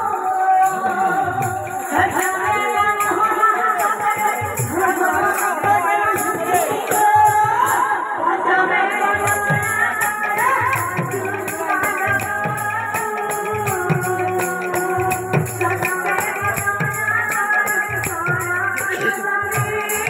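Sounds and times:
jingling hand cymbals: 0:00.0 - 0:07.4, 0:09.1 - 0:20.0
barrel drum rhythm: 0:00.7 - 0:03.4, 0:09.2 - 0:20.0.

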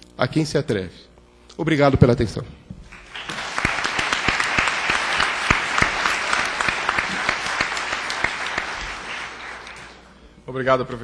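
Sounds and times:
audience applauding: 0:02.9 - 0:10.2.

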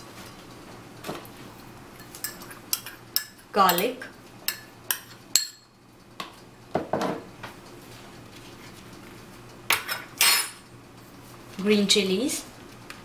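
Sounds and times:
metal spoon clinking against bowl: 0:02.1 - 0:03.9.

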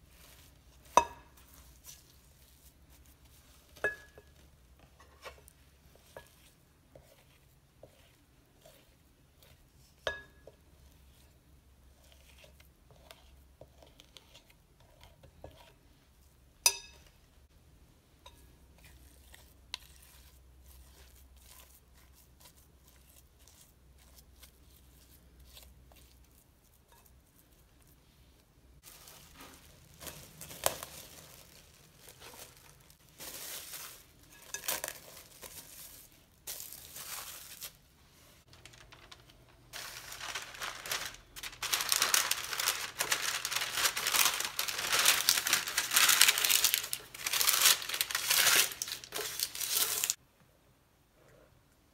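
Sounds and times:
metal spoon scraping dough in bowl: 0:03.7 - 0:11.3, 0:11.9 - 0:15.9, 0:18.4 - 0:27.6
parchment paper crinkling: 0:28.8 - 0:50.2.

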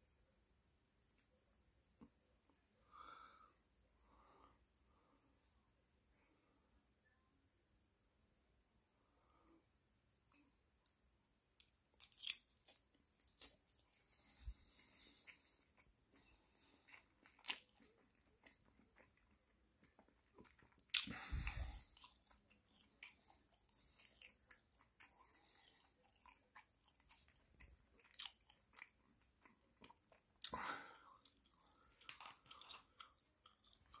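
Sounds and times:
person chewing food: 0:11.6 - 0:34.0.

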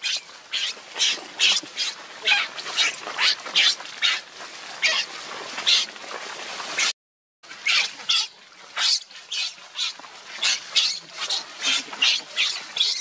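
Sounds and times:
infant monkey screaming: 0:00.0 - 0:04.2, 0:07.6 - 0:13.0.

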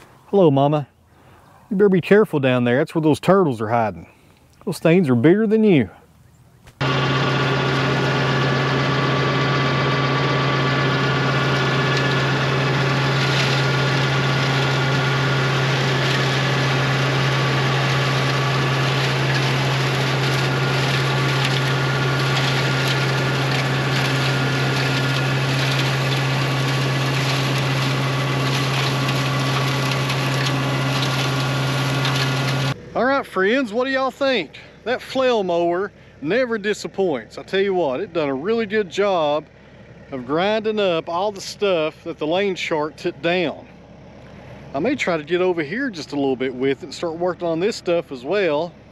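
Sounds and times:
tractor and flail mower hum: 0:00.0 - 0:48.9
brush crackling as shredded: 0:06.6 - 0:35.6.

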